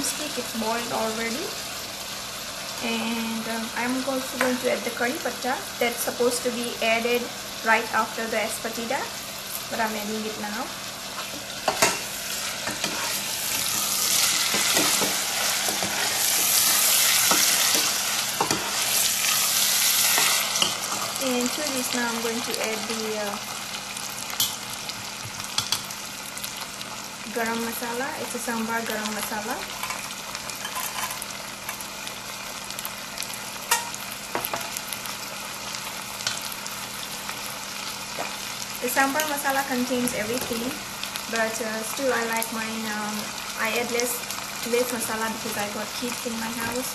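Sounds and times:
vegetables sizzling in a pot: 0.0s - 46.9s
ladle stirring vegetables: 11.1s - 21.2s.

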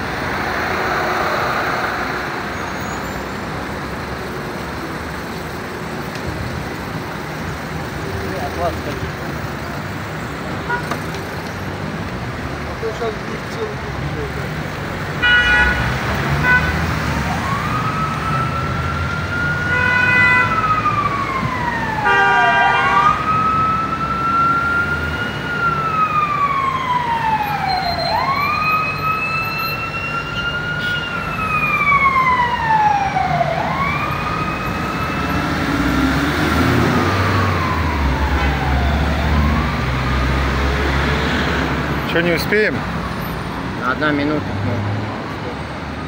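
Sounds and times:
road traffic: 0.0s - 46.0s
car horns honking: 10.6s - 11.1s, 15.2s - 16.9s, 19.7s - 20.5s, 22.0s - 23.2s
emergency siren wailing: 15.2s - 43.4s.

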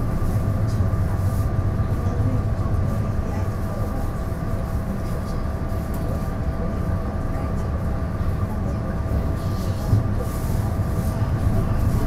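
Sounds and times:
diesel train rumbling: 0.0s - 12.0s.

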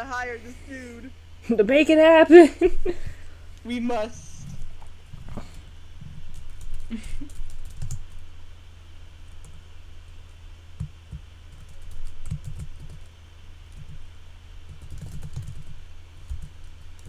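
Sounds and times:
steady low hum: 0.0s - 17.0s
computer keyboard typing: 6.2s - 8.2s, 10.8s - 13.1s, 13.7s - 14.0s, 14.7s - 17.0s.

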